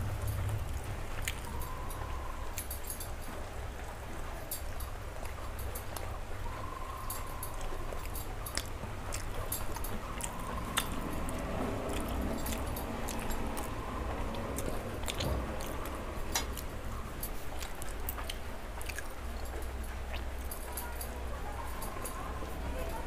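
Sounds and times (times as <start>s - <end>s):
low steady hum: 0.0s - 23.0s
person chewing food: 1.2s - 1.8s, 7.2s - 16.7s, 17.3s - 20.5s
wet mouth clicks: 17.6s - 19.1s.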